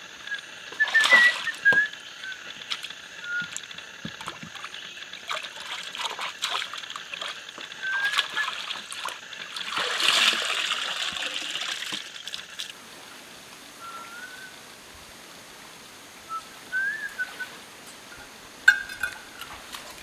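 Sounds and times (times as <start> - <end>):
steady hiss: 0.0 - 5.8, 10.3 - 20.0
water splashing: 0.2 - 12.8
short rising whistle: 16.3 - 17.5.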